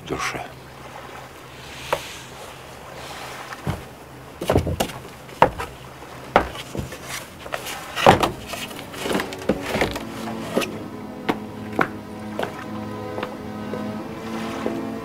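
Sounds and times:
wooden knocks and thumps: 3.6s - 12.6s
quiet music: 7.8s - 15.0s.

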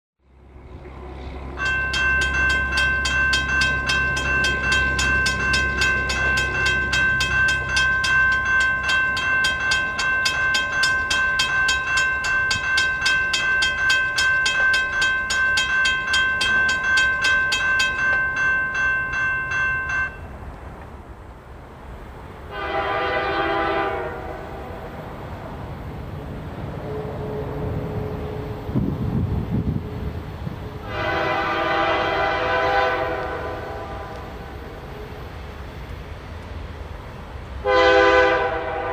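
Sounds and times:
crossing bell ringing rapidly: 1.2s - 20.3s.

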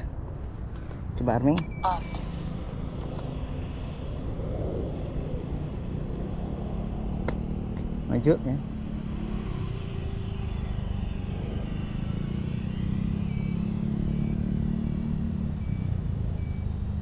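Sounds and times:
drone buzzing: 0.6s - 17.0s
faint high electronic beep: 1.6s - 2.2s.

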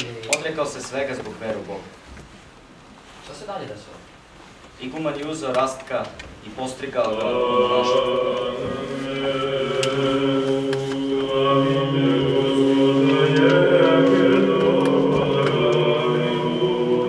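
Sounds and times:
choral chant: 7.0s - 17.0s
steady low drone note: 7.3s - 17.0s.

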